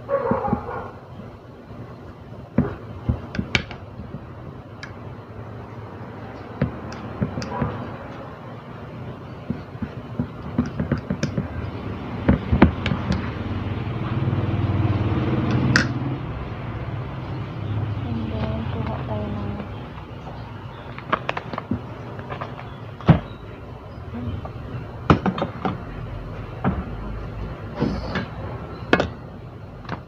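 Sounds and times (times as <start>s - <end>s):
low engine-like hum: 11.4s - 30.0s.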